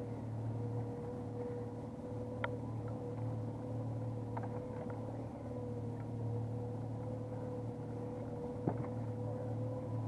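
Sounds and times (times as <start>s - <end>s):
boat motor humming: 0.0s - 10.0s.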